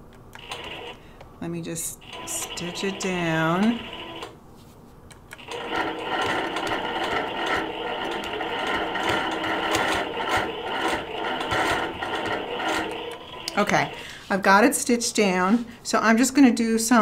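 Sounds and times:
quilting machine stitching: 0:02.0 - 0:04.3, 0:05.4 - 0:14.0.

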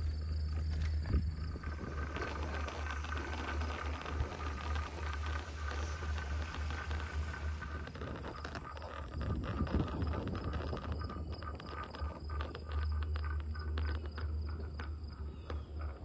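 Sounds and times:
faint steady whine: 0:00.0 - 0:16.0
wind buffeting microphone: 0:00.6 - 0:12.6.

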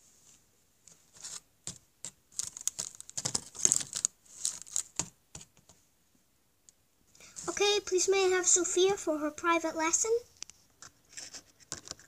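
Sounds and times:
cardboard and toy pieces handled: 0:00.8 - 0:05.8, 0:07.2 - 0:07.6, 0:10.4 - 0:12.0.

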